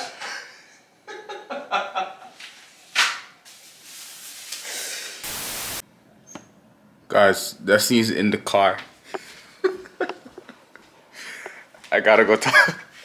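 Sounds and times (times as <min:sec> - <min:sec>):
tv static hiss: 0:05.2 - 0:05.8.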